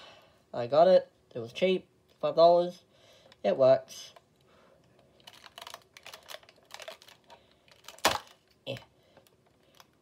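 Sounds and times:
plastic packaging crackling: 5.1 - 10.0
plastic snaps: 5.2 - 10.0.

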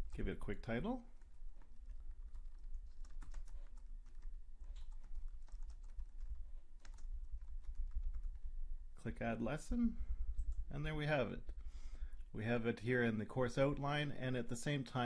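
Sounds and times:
low hum: 0.0 - 12.6
keyboard typing: 1.1 - 8.5.

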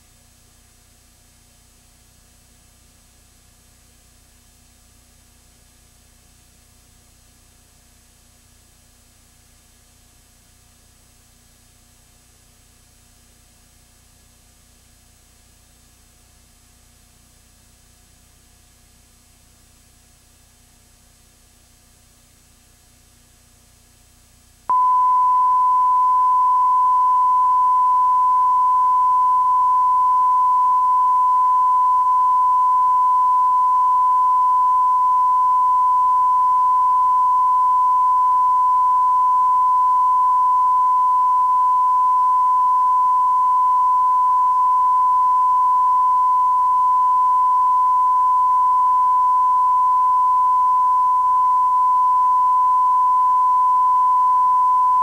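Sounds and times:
steady sine-wave test tone: 0.0 - 55.0.

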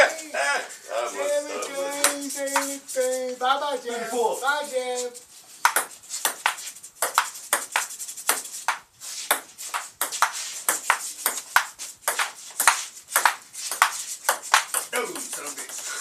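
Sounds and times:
ping pong ball clicking: 5.6 - 14.9.

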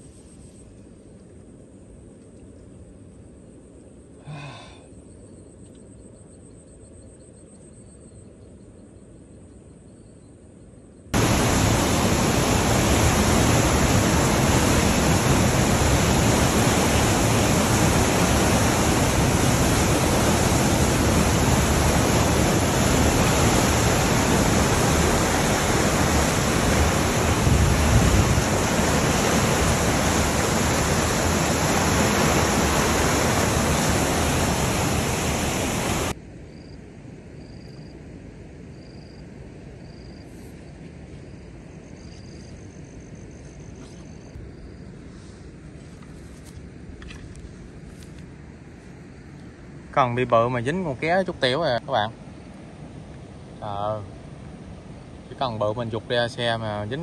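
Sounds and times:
turbulent water rushing: 11.2 - 36.2.

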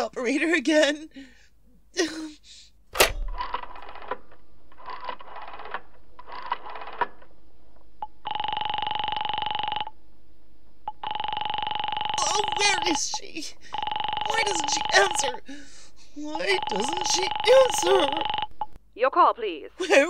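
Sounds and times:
rotary dial turning: 3.0 - 9.9, 16.4 - 18.8
telephone ringing tone: 8.0 - 10.0, 10.8 - 15.6, 16.2 - 18.8.

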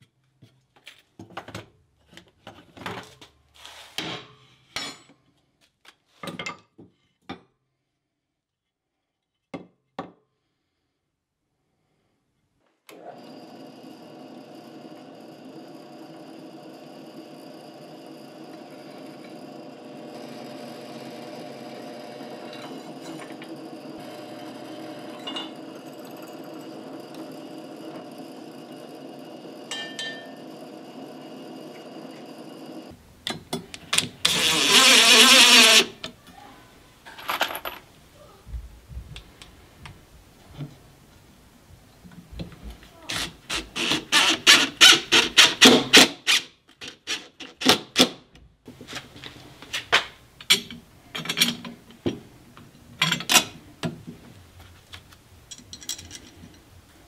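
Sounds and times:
drill press cutting steel: 12.9 - 32.9, 34.0 - 36.1, 43.1 - 47.3.

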